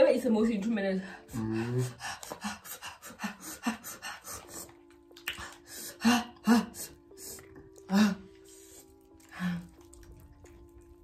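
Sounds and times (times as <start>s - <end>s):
people panting and huffing: 1.2s - 4.8s.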